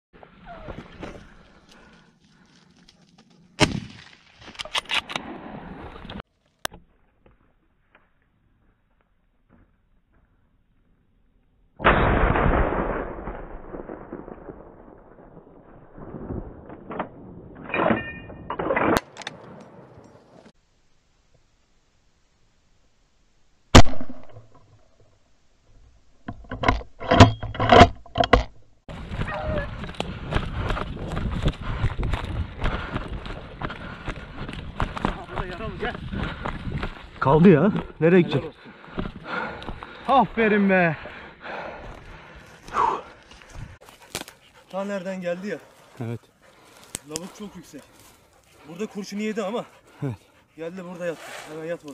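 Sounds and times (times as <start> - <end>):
gunshot: 3.6 - 4.1, 11.8 - 15.2, 23.8 - 24.5.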